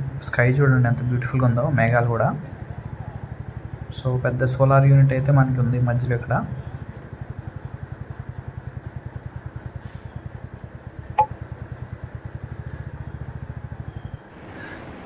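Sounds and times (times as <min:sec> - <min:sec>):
motorcycle engine running: 0:02.3 - 0:15.0.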